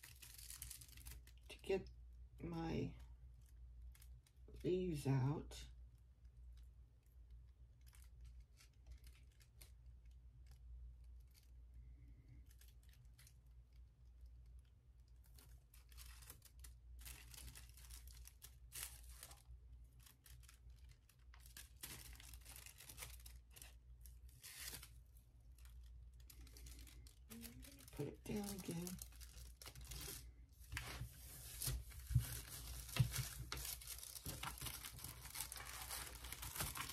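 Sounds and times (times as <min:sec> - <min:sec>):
paper rustling and crackling: 0:00.0 - 0:01.4, 0:15.2 - 0:36.9.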